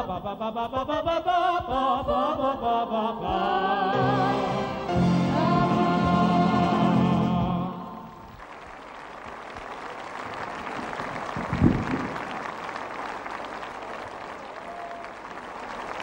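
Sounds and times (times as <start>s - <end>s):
audience applauding: 8.1s - 16.0s.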